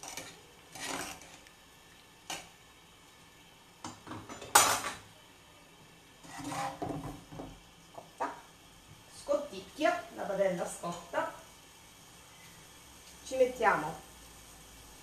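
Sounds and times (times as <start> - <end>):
pots and pans clattering: 0.0 - 1.4, 3.8 - 5.1, 6.2 - 7.6.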